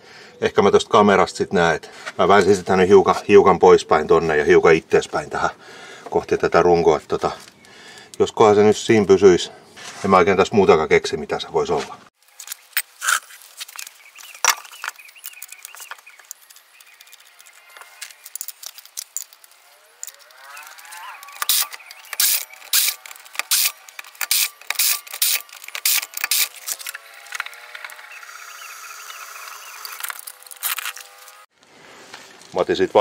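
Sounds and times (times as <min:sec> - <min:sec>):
ratchet wrench clicking: 0:20.0 - 0:28.0.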